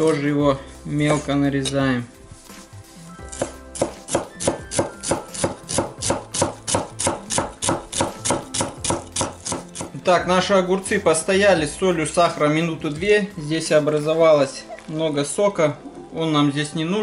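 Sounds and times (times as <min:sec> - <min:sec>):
knife chopping on wooden board: 0:03.3 - 0:10.0.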